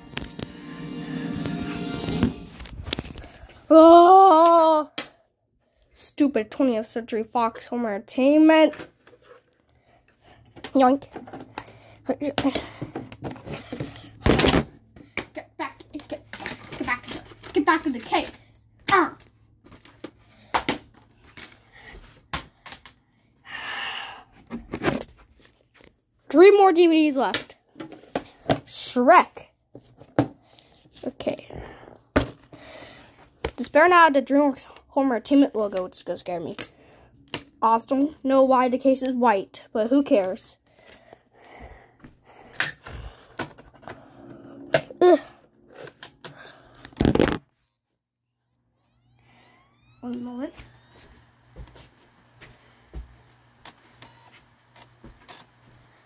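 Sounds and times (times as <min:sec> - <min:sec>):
plastic disc case handling: 0:45.8 - 0:47.4.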